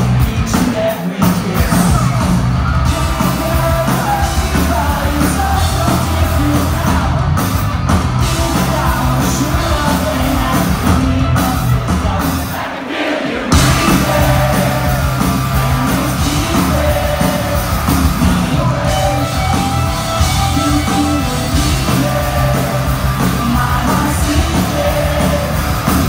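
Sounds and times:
bass guitar: 0.0 - 12.6, 13.5 - 26.0
drums: 0.0 - 26.0
electric guitars: 13.5 - 26.0
person singing: 13.6 - 26.0.

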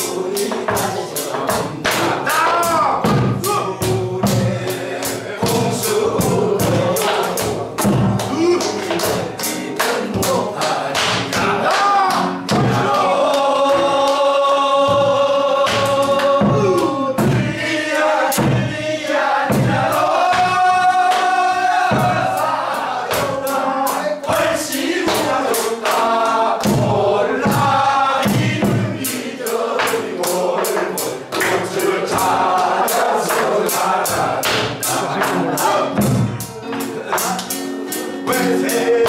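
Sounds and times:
group chorus singing folk song: 0.0 - 39.0
hand clapping: 0.4 - 2.9, 6.6 - 16.4, 19.8 - 22.5, 24.2 - 26.9, 28.2 - 37.7
barrel drum strokes: 14.9 - 36.6.

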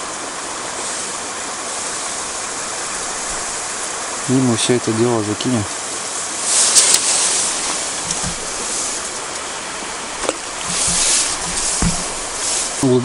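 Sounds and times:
river water rushing: 0.0 - 13.0
fishing rod clicks and knocks: 6.8 - 9.5, 10.2 - 12.7.

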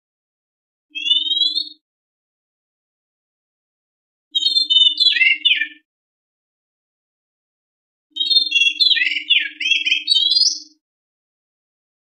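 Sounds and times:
bird singing whistles: 0.9 - 1.8, 4.4 - 5.8, 8.2 - 10.8.

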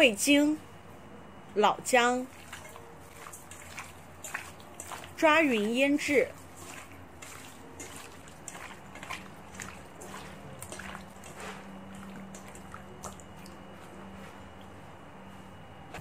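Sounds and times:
wet squelching of meat mixed by hand: 2.1 - 15.0.

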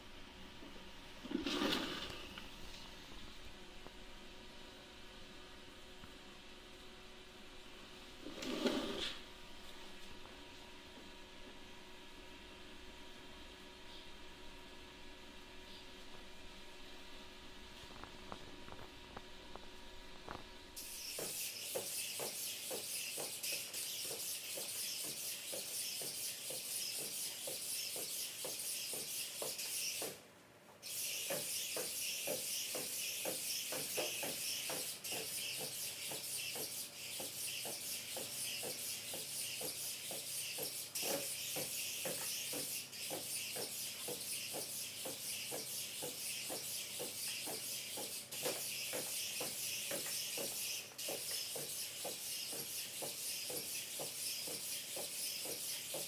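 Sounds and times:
robot walking hiss: 30.8 - 56.0.

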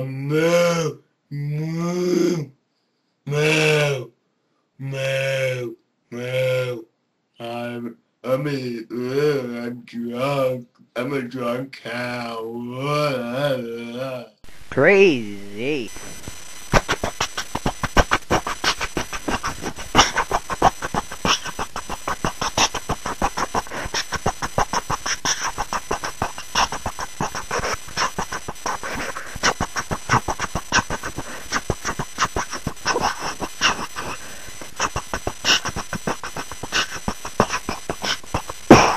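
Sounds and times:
music with fast percussive beat: 16.7 - 38.9.

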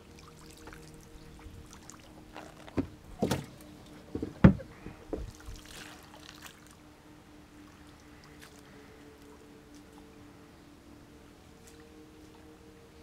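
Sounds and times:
soft swish of water: 0.0 - 13.0
knocks against boat hull: 4.1 - 5.3.

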